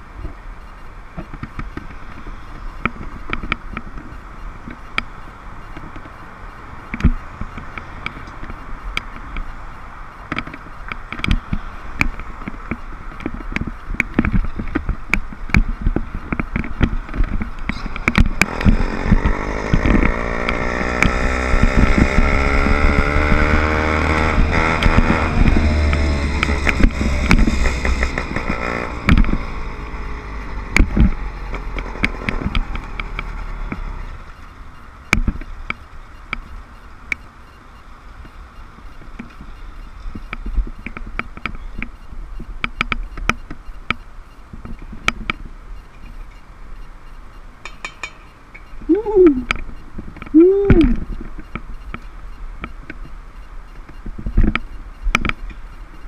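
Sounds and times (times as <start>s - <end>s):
small motorbike engine running: 15.6s - 34.5s.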